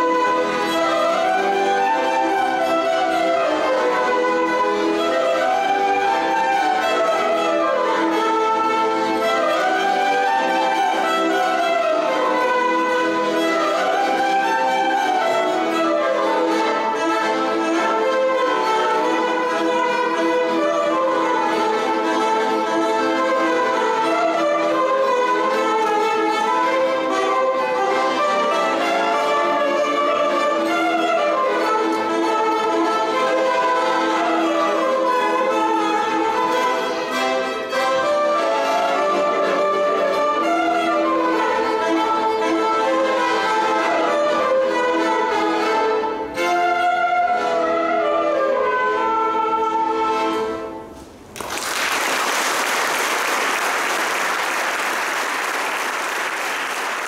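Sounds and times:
accordion: 0.0s - 51.3s
violin melody: 0.0s - 51.4s
applause: 51.3s - 57.0s.

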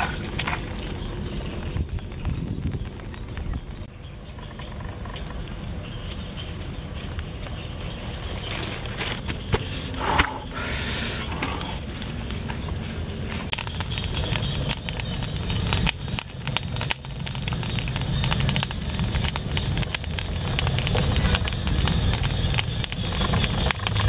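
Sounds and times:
short hiss: 9.7s - 11.8s.

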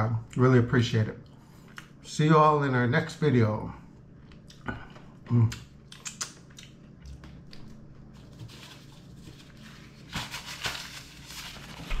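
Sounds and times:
steady low hum: 0.0s - 12.0s
paper napkin rustling: 8.1s - 12.0s.

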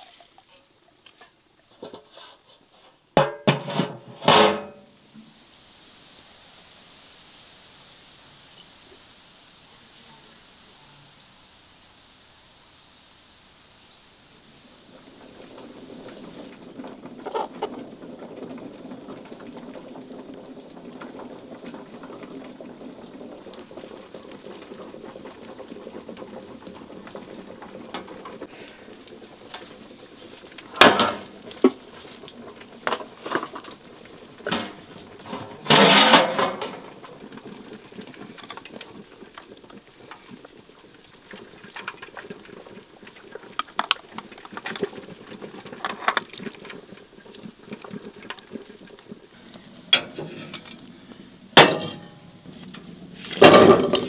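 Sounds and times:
low background noise: 0.0s - 54.0s
stone weights and lid clattering: 3.2s - 4.8s, 30.7s - 31.3s, 34.4s - 36.9s, 49.9s - 50.9s, 51.6s - 52.3s, 53.3s - 54.0s.

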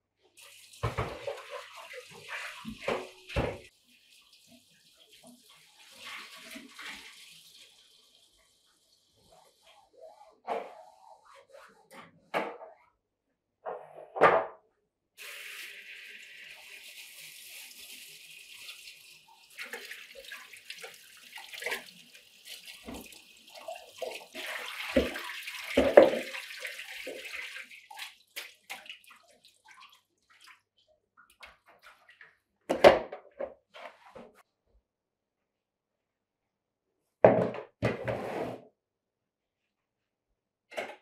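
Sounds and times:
tap running into a colander: 0.7s - 1.5s, 16.5s - 27.5s
plastic bowls knocking in a sink: 24.9s - 26.4s, 37.2s - 38.0s.

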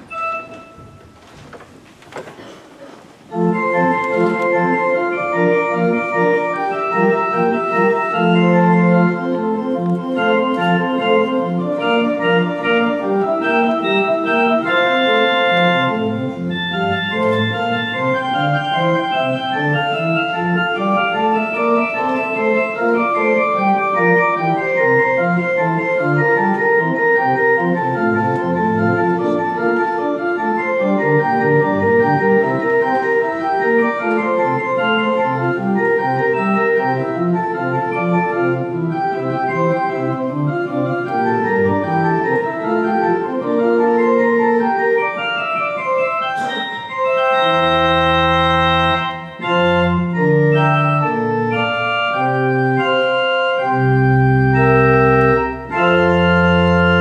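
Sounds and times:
organ playing chords: 0.0s - 1.4s, 3.3s - 57.0s.

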